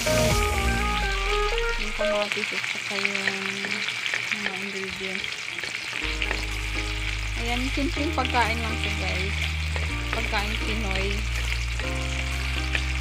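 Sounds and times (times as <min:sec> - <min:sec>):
vegetables sizzling in hot oil: 0:00.0 - 0:13.0
wooden spatula stirring in wok: 0:03.0 - 0:13.0.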